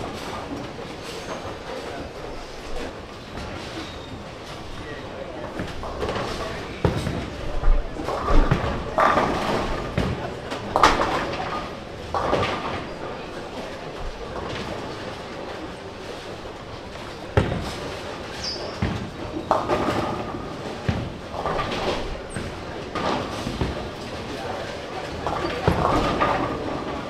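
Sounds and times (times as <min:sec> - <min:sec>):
crowd chatter: 0:00.0 - 0:27.0
bowling pins crashing: 0:17.3 - 0:27.0.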